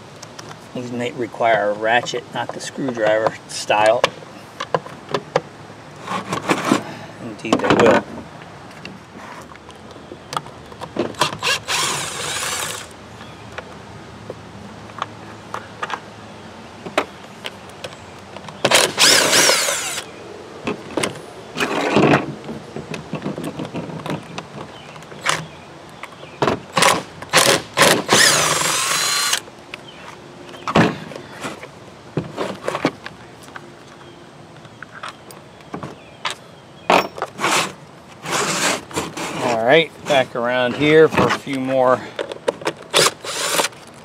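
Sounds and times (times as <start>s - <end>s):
cordless drill motor whine: 11.3s - 12.9s, 18.7s - 20.1s, 28.1s - 29.4s, 42.9s - 43.7s.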